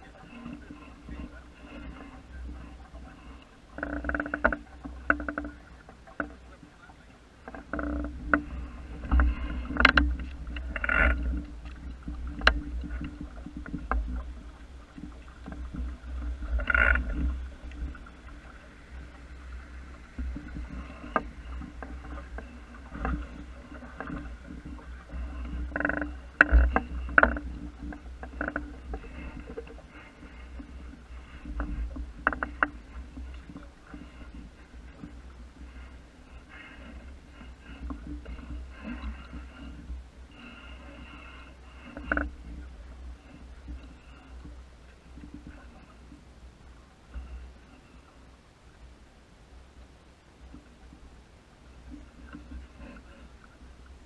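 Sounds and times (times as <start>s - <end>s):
boat knocks and creaks: 0.0s - 48.2s, 50.4s - 54.0s
wind and water on hull: 0.0s - 54.0s.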